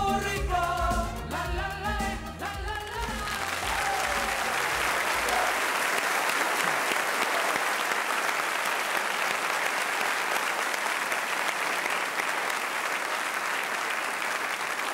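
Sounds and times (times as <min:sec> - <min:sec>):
audience applauding: 0:03.0 - 0:14.9.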